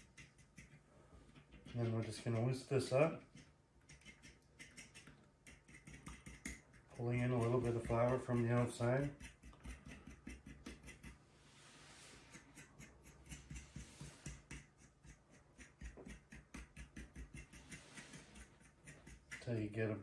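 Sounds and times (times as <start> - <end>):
fork whisking egg: 0.0 - 0.8, 3.3 - 11.2, 12.3 - 19.5.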